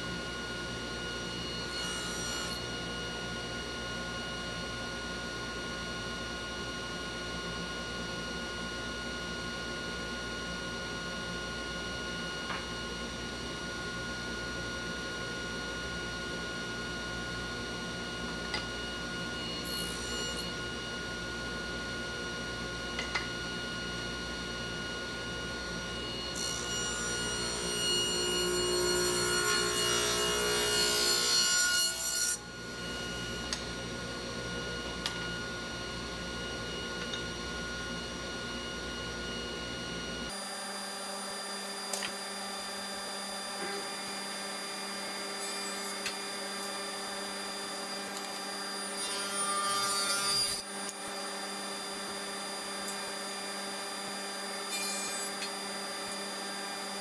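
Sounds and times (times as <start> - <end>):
table saw running: 18.4 - 36.9.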